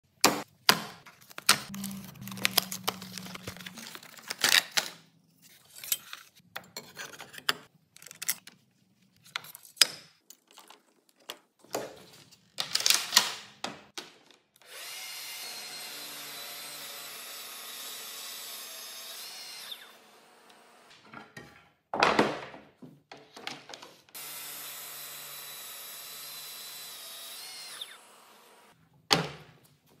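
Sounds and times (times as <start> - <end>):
clicks and knocks of handling: 5.8 - 14.5.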